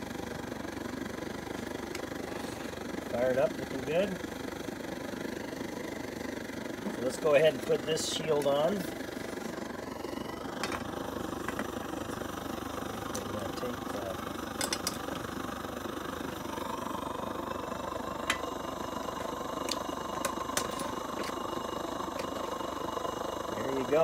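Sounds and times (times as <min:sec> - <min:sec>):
stove burner hissing: 0:00.0 - 0:24.0
metal pot clinking: 0:14.6 - 0:15.0.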